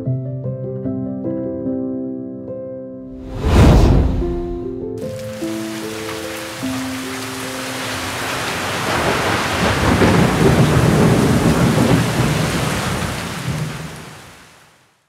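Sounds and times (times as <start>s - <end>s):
rain falling: 5.0s - 15.0s
rumble of thunder: 8.6s - 14.2s.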